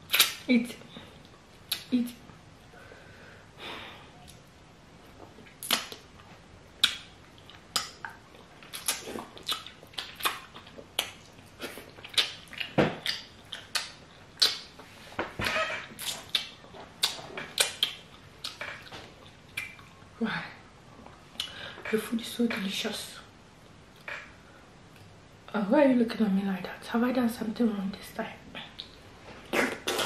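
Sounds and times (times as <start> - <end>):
wet lip-smacking chewing: 6.8 - 14.7, 16.0 - 20.0.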